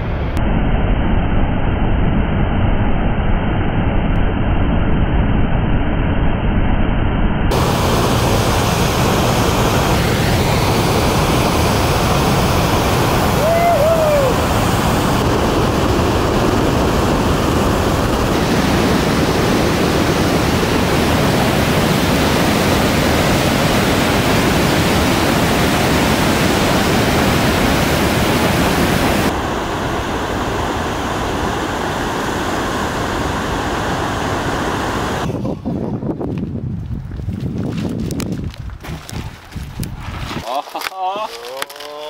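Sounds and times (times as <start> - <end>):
river rapids rushing: 11.0 - 14.7.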